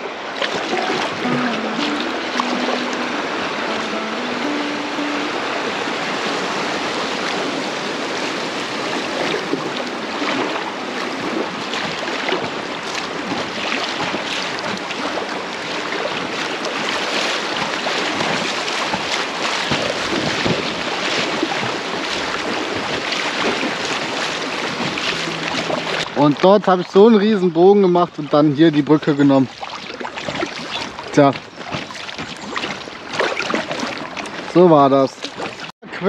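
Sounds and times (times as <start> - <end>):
river water rushing and splashing: 0.0 - 36.0.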